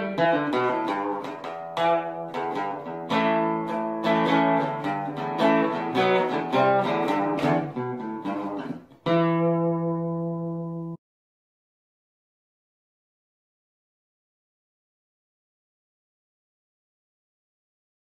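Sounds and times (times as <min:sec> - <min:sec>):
acoustic guitar: 0:00.0 - 0:11.0.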